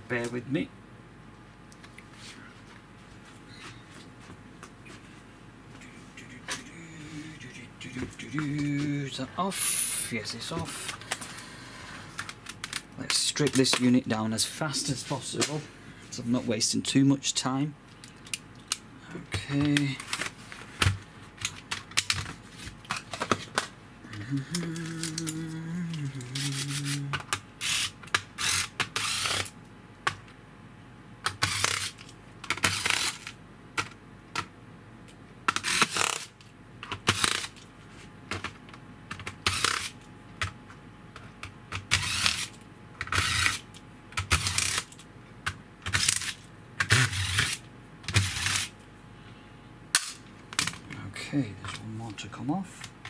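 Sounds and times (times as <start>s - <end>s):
electric screwdriver whirring: 27.6s - 29.5s.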